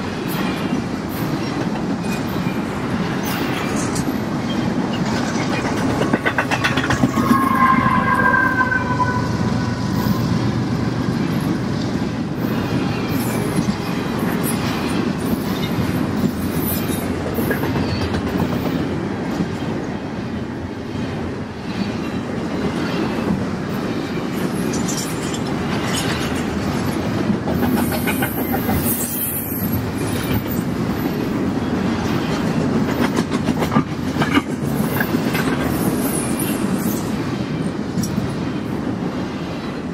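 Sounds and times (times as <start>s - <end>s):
train wheels rumbling on rail: 0.0s - 39.9s
high-pitched wheel squeal: 6.0s - 11.0s.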